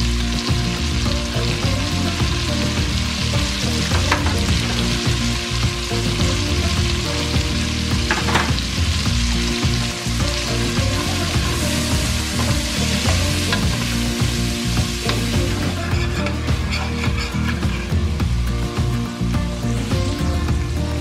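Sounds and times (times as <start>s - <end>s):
onions sizzling in oil: 0.0s - 21.0s
utensil scraping pot: 15.0s - 18.1s.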